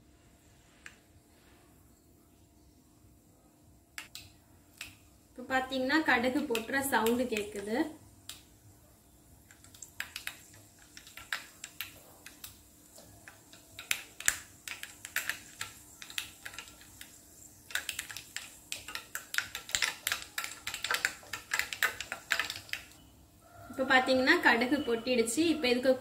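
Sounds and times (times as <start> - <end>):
mustard seeds popping in hot oil: 4.0 - 5.2, 6.0 - 8.6, 9.4 - 23.0.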